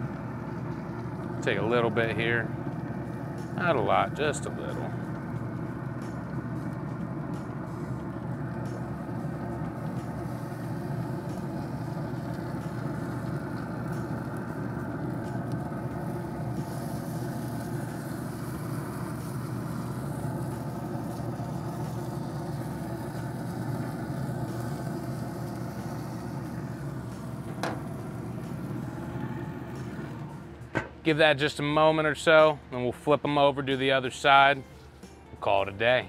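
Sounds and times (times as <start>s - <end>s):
low mechanical rumble: 0.0s - 35.5s.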